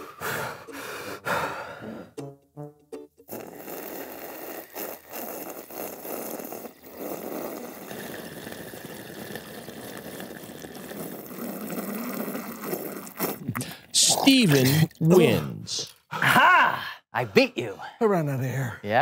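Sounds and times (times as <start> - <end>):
people slurping soup: 3.2 - 16.4.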